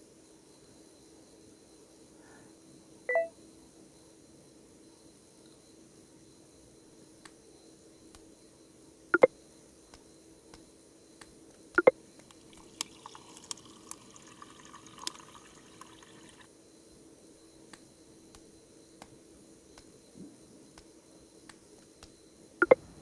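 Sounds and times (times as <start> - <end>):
faint steady hum: 0.0 - 23.0
water running: 12.3 - 16.5.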